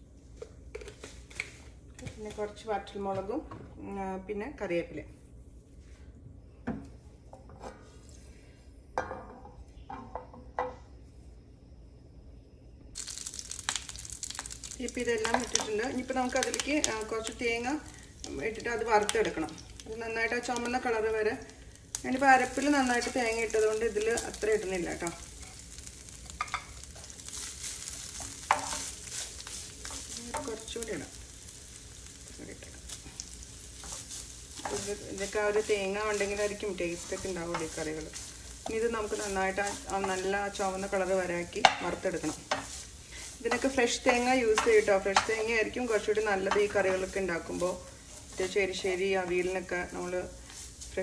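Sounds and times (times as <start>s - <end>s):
coconut sizzling in oil: 12.9s - 51.0s
wooden spatula scraping pan: 33.6s - 51.0s.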